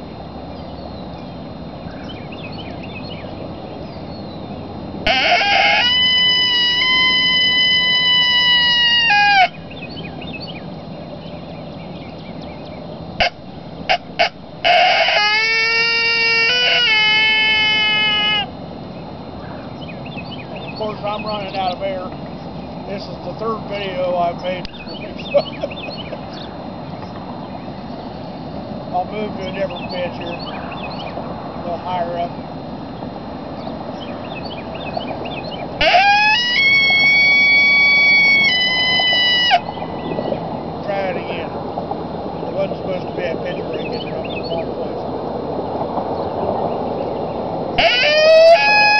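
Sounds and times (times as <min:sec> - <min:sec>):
coyote howler call howls: 0:05.0 - 0:10.5, 0:13.2 - 0:18.6, 0:35.8 - 0:40.4, 0:47.8 - 0:48.9.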